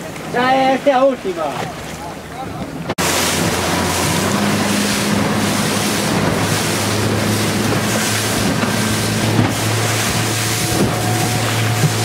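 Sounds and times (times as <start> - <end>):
choppy sea rushing: 0.0 - 12.0
motorboat engine humming: 0.0 - 12.0
wind noise on microphone: 2.9 - 12.0.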